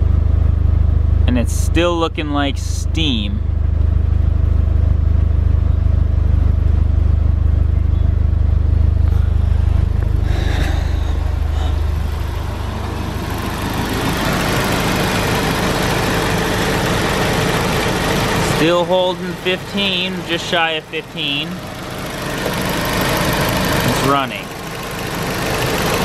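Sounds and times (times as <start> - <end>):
car engine idling: 0.0 - 26.0
low exhaust drone: 0.0 - 26.0
hissy engine bay sound: 9.0 - 26.0.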